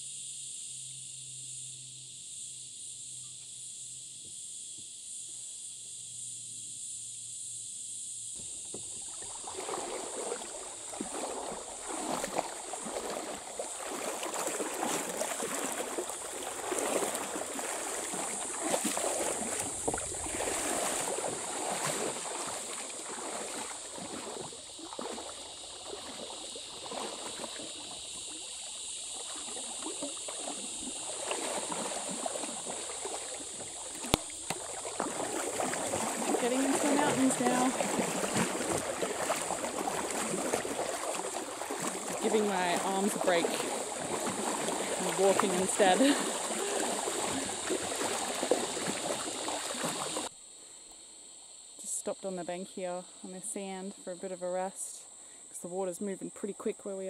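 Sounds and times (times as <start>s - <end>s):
high-pitched insect drone: 0.0s - 51.8s
water lapping along hull: 3.1s - 50.6s, 51.8s - 57.0s
paddle strokes splashing: 8.4s - 50.3s.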